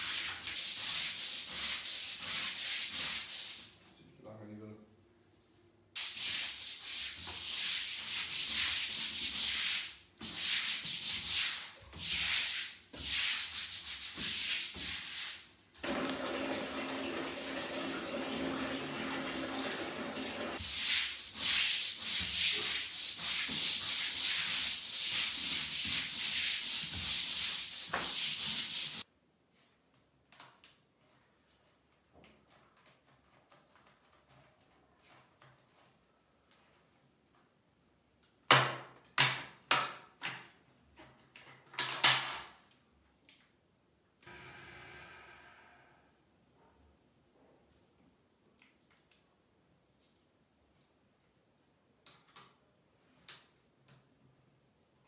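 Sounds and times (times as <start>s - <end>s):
brush scrubbing wet tiled floor: 0.0s - 3.9s, 6.0s - 29.1s.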